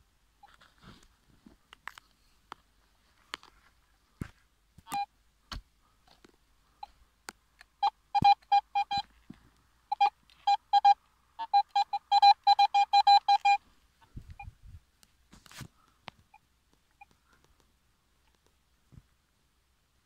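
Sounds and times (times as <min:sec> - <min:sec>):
metal detector beeping: 0:07.8 - 0:09.1, 0:09.9 - 0:13.6.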